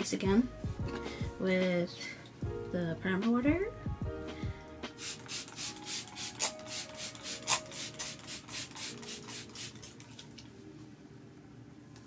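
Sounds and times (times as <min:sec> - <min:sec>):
spray bottle spritzes: 0:05.0 - 0:10.0.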